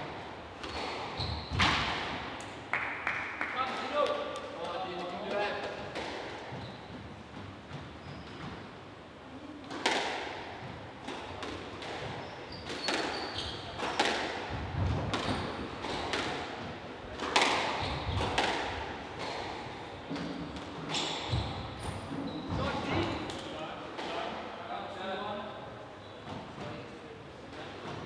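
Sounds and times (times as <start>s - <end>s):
squash ball hits echoing: 0.6s - 4.5s, 9.7s - 13.2s, 13.8s - 21.8s.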